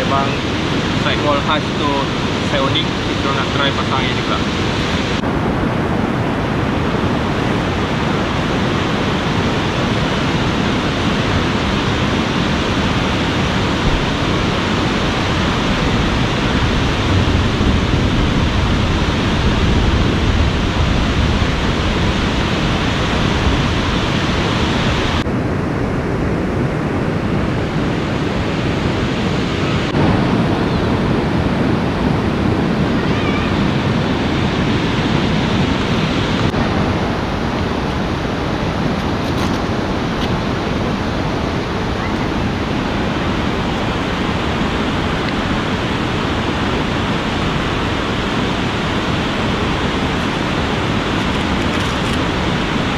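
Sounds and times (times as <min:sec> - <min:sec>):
fast river rushing: 0:00.0 - 0:25.5, 0:26.4 - 0:52.9.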